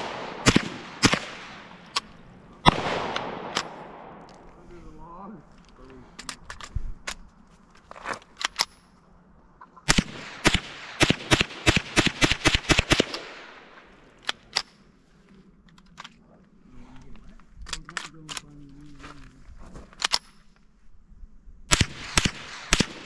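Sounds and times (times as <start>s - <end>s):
rifle shots: 0.0s - 4.5s, 9.8s - 14.6s, 21.7s - 23.0s.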